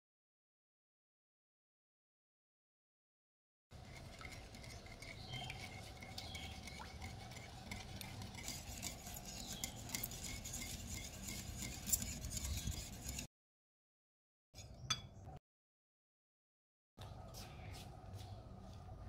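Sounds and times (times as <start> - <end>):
liquid swishing: 3.8 - 13.3
whisk clinking against glass bowl: 3.8 - 13.3.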